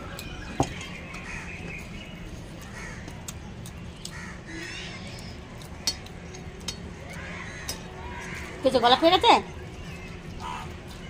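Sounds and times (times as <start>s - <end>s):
crows cawing: 1.2s - 1.6s, 2.6s - 3.2s, 4.1s - 5.2s, 7.0s - 8.6s, 10.3s - 11.0s.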